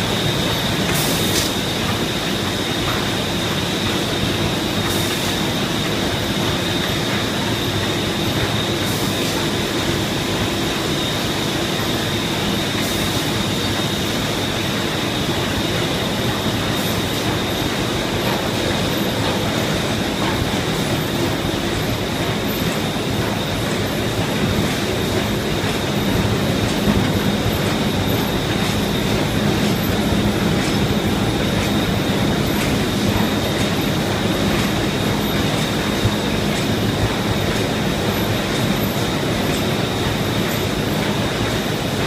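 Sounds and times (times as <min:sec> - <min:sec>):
high machine whine: 0:00.0 - 0:42.0.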